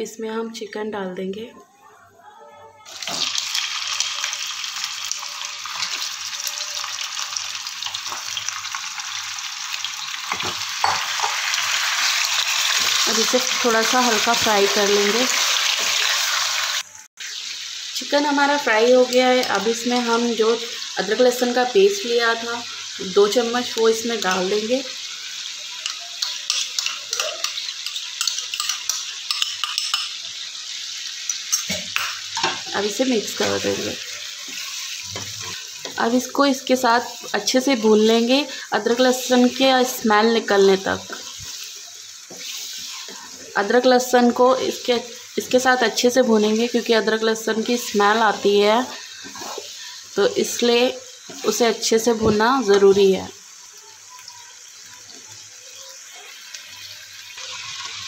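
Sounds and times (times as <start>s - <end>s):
chicken sizzling in hot oil: 2.9s - 58.0s
spoon scraping bowl and pan: 10.3s - 16.3s, 22.8s - 36.2s, 38.9s - 43.4s, 47.5s - 49.9s, 51.2s - 53.0s.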